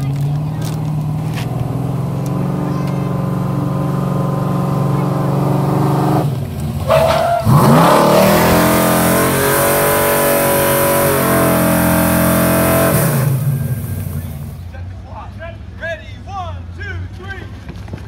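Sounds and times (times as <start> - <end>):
truck engine revving: 0.0 - 14.7.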